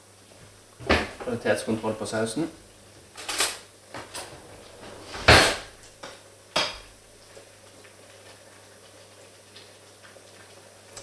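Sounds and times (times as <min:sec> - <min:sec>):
dishes and cutlery clinking: 0:03.2 - 0:04.4.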